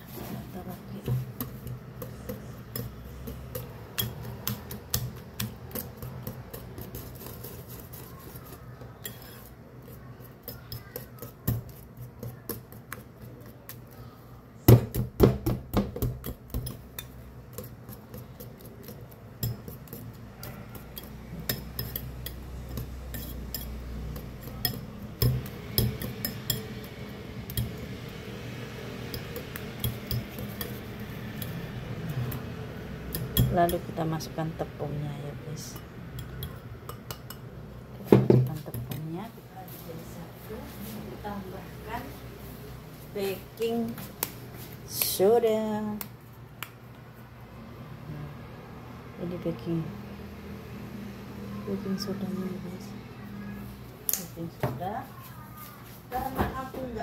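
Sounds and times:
whisk beating batter in bowl: 0.0 - 39.8.

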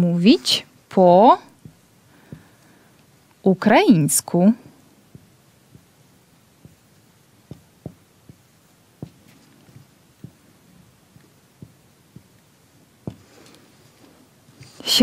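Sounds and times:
marker tapping on whiteboard: 5.1 - 6.0, 6.6 - 6.9, 7.5 - 10.4, 11.1 - 12.4, 13.0 - 13.3.

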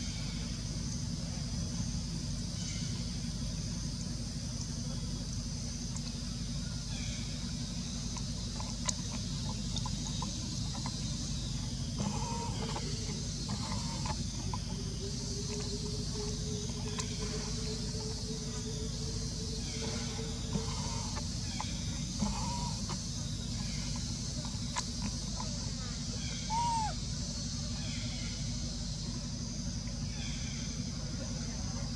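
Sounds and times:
faint short chirps: 26.4 - 27.0.

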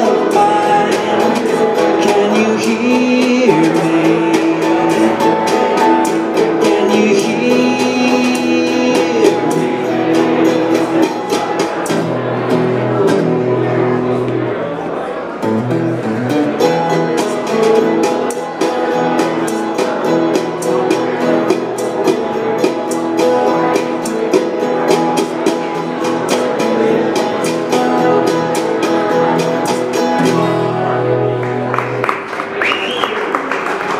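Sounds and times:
mandolin: 0.0 - 32.7
acoustic guitar strumming: 0.0 - 33.1
crowd cheering: 30.2 - 33.9.

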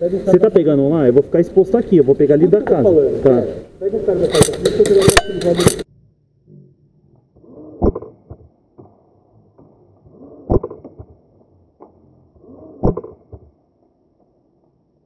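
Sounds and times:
airsoft rifle shots: 4.2 - 5.9
handling clicks and rustle: 4.2 - 5.9.

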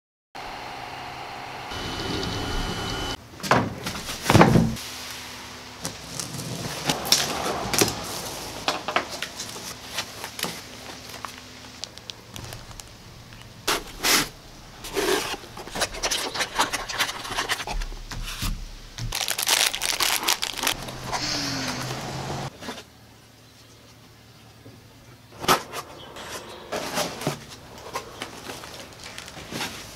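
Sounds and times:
cardboard rustling and scraping: 5.8 - 11.5, 13.7 - 21.2, 26.7 - 29.9.

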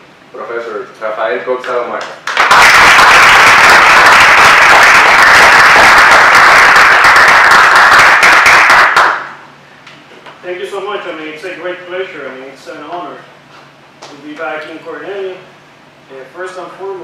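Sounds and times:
audience applauding: 2.2 - 9.4.

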